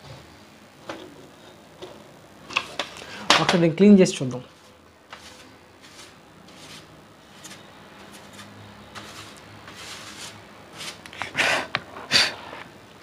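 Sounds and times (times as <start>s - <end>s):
brush swishing over keyboard: 4.5s - 11.0s.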